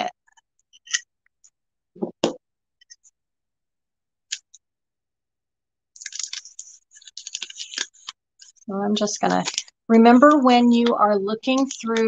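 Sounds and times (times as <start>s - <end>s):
plastic wrap crinkling: 5.9s - 12.0s.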